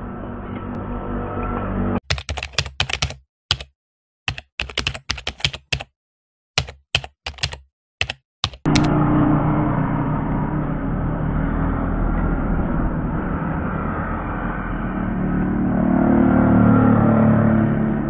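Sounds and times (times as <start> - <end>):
steady low hum: 8.7 - 17.0.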